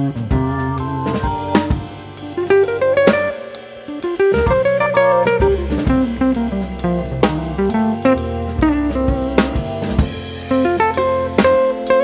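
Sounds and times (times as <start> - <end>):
bass line: 0.0 - 3.3, 4.3 - 11.3
drum kit steady beat: 0.0 - 12.0
stepping melody: 0.3 - 7.9.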